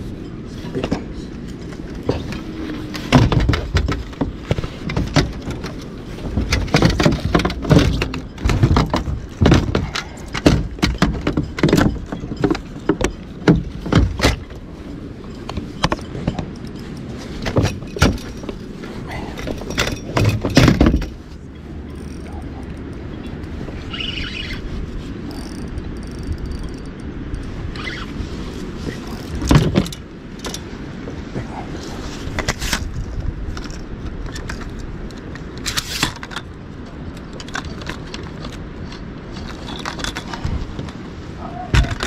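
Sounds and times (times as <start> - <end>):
gear knocking and rattling: 0.0 - 28.0, 28.8 - 30.7.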